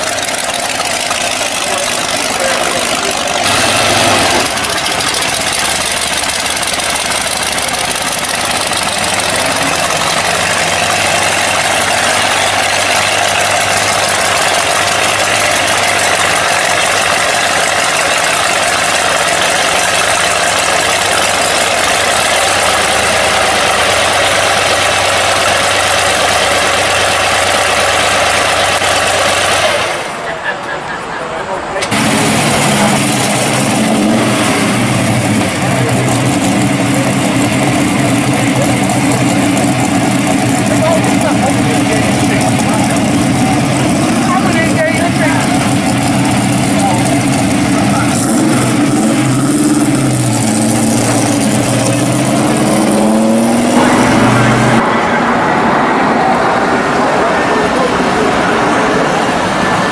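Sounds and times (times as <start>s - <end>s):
engine revving: 0.0s - 30.3s, 31.8s - 59.9s
hot rod engine idling loudly: 0.0s - 30.8s, 31.8s - 59.9s.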